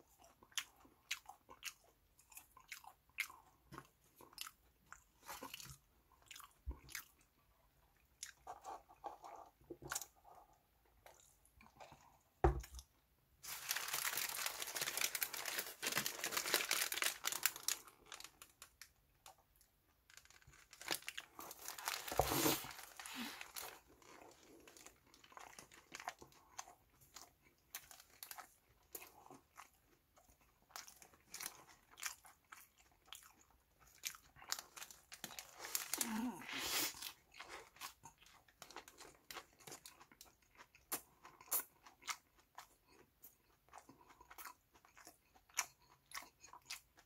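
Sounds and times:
paper wrapper crinkling: 13.4s - 19.0s, 20.1s - 26.1s, 34.5s - 36.9s.

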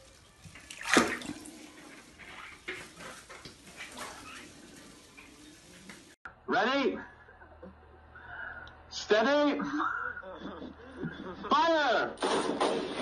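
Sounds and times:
water splashing in a tub: 0.0s - 6.2s.

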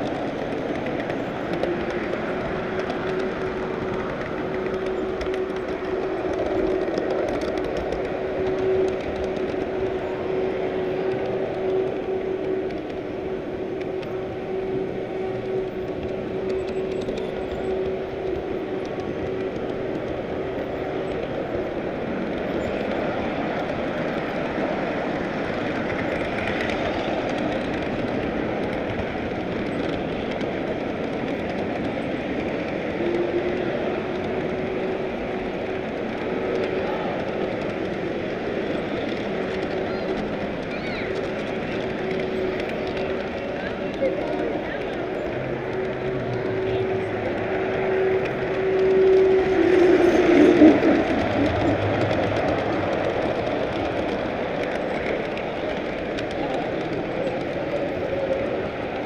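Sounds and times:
model train wheels on track: 0.0s - 59.0s.

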